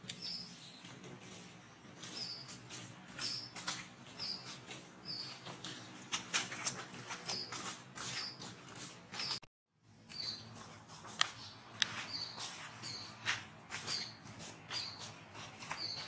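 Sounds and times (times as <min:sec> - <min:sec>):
bird chirping: 0:00.1 - 0:01.0, 0:01.9 - 0:02.6, 0:03.2 - 0:05.6, 0:07.2 - 0:08.5, 0:10.0 - 0:10.6, 0:11.3 - 0:16.0.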